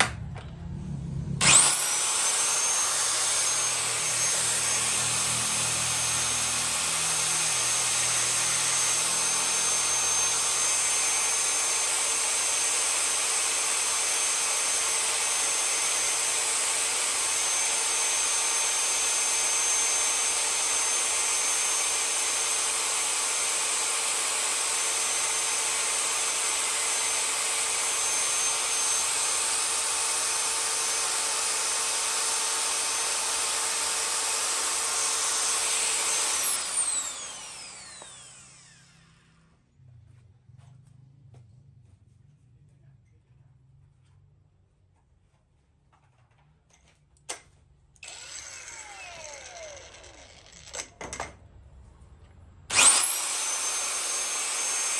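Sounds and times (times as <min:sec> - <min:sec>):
low rumble: 0:00.0 - 0:01.8
power tool motor whining: 0:01.3 - 0:39.5, 0:48.0 - 0:51.0, 0:52.7 - 0:54.9.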